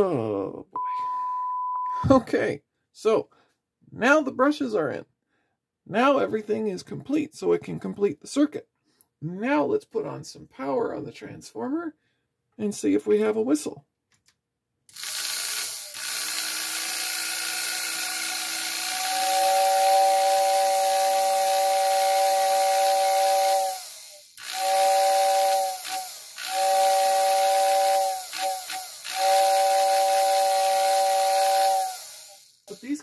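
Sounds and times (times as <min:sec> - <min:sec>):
motor spinning up with hiss: 0:18.5 - 0:33.0
two-note train whistle: 0:19.2 - 0:23.8, 0:24.6 - 0:25.8, 0:26.5 - 0:28.2, 0:29.2 - 0:31.9.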